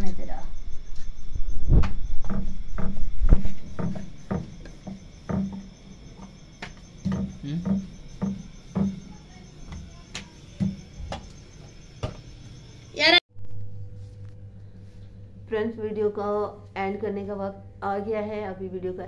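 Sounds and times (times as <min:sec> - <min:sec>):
kitchen utensils knocking and clattering: 0:02.2 - 0:12.3.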